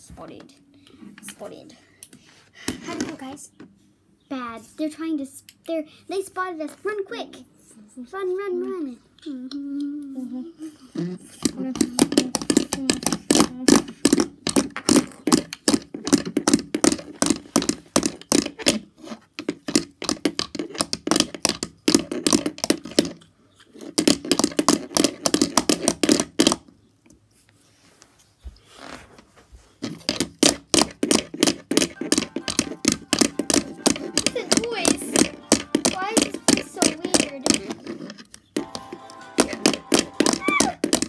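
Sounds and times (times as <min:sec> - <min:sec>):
plastic toy figures clacking: 0:11.4 - 0:18.8, 0:29.8 - 0:41.0.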